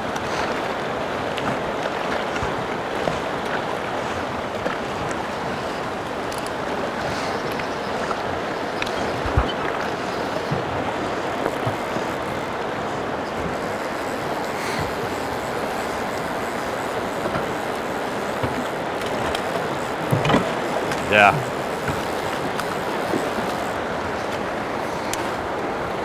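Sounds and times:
river rushing over rocks: 10.8s - 26.0s.

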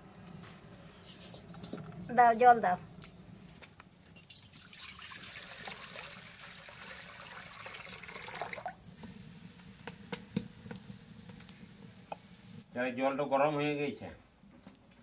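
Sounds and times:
water pouring into pan: 4.2s - 9.5s.

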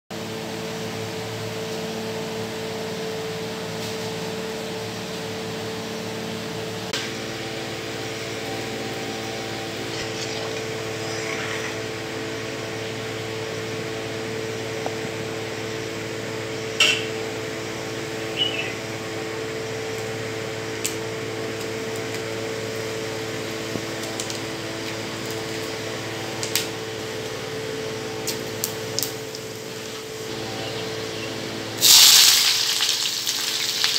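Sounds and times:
faint constant whine: 0.2s - 33.9s
machine hum: 0.2s - 33.9s.

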